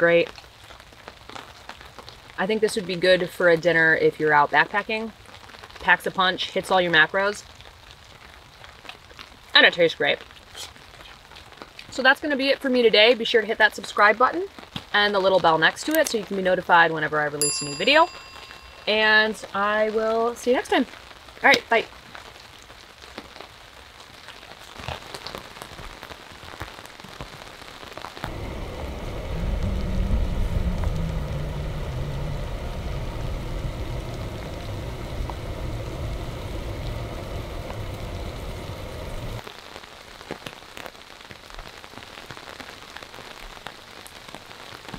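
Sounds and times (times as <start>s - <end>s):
rain on a tarp: 0.0s - 44.9s
deep rumbling: 28.2s - 39.4s.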